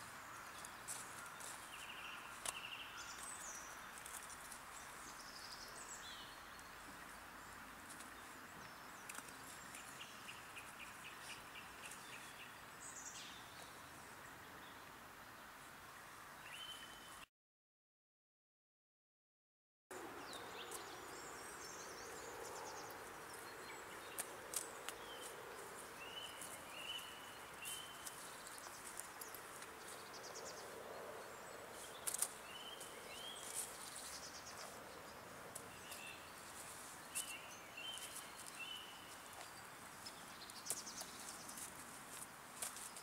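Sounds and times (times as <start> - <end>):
small birds chirping: 0.0 - 17.2, 19.9 - 43.0
steady background hiss: 20.0 - 43.0.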